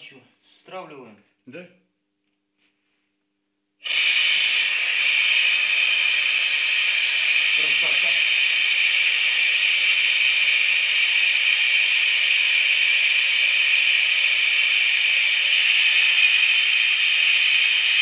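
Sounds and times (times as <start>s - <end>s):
compressed air hissing from valve: 3.8s - 18.0s.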